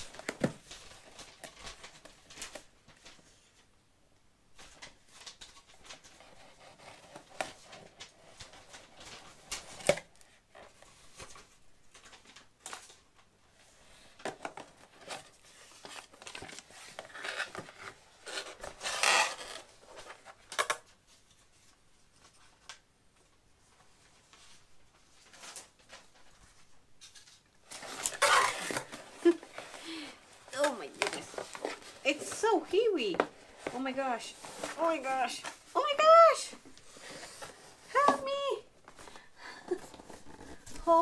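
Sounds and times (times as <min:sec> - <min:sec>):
cardboard scraping and tearing: 0:14.8 - 0:20.4, 0:27.7 - 0:29.8.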